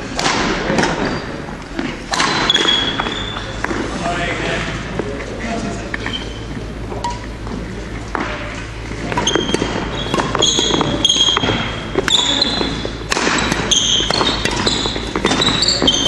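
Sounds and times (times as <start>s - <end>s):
rackets striking shuttlecock: 0.1s - 1.1s, 1.7s - 3.8s, 8.1s - 16.0s
shoes squeaking on court: 0.6s - 3.9s, 5.7s - 16.0s.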